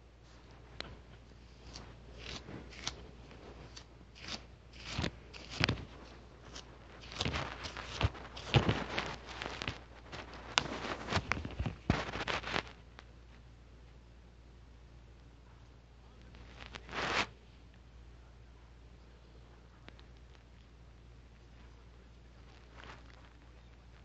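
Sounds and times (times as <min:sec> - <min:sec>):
faint low hum: 0:00.0 - 0:24.0
short rustling noises: 0:00.2 - 0:12.8, 0:16.3 - 0:17.4
clicks and crackles: 0:03.7 - 0:13.1.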